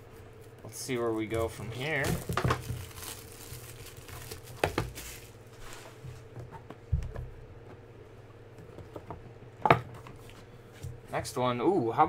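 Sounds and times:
faint steady hum: 0.0s - 12.0s
plastic wrapper rustling: 1.2s - 5.8s.

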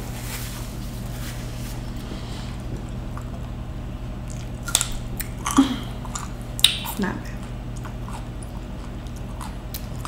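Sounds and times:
steady low hum: 0.0s - 10.0s
wet chewing mouth sounds: 4.2s - 10.0s.

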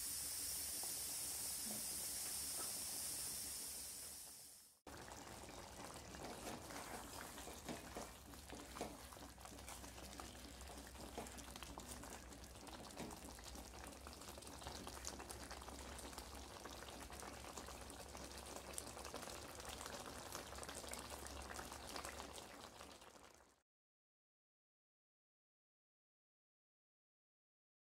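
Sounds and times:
curry bubbling and sizzling: 0.1s - 23.6s
wooden spatula stirring: 5.0s - 13.3s.

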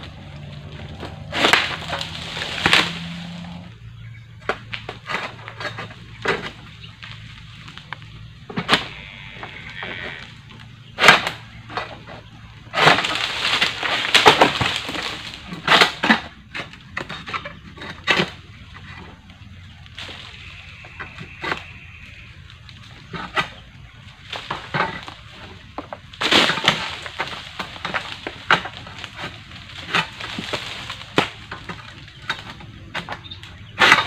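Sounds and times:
blade cracking through stems: 0.0s - 3.5s, 12.8s - 16.8s, 24.3s - 34.0s
dry fronds crashing down: 0.0s - 17.0s, 18.2s - 34.0s.

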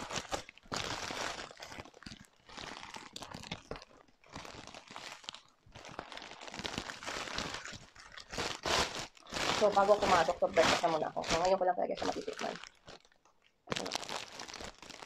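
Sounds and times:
plastic wrapping crinkling: 0.0s - 15.0s.

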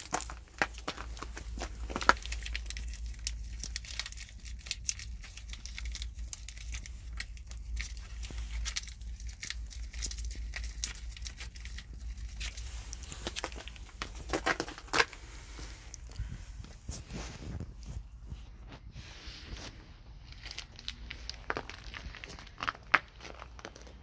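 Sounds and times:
crinkling and crackling clicks: 0.0s - 24.0s
steady low rumble: 0.0s - 24.0s.

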